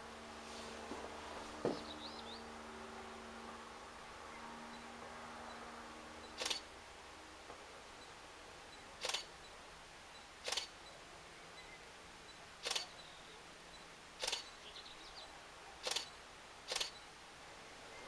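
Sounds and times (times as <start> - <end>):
faint steady hiss: 0.0 - 18.0
sharp double clicks: 6.3 - 6.7, 9.0 - 9.3, 10.4 - 10.8, 12.6 - 13.0, 14.2 - 14.5, 15.8 - 17.0.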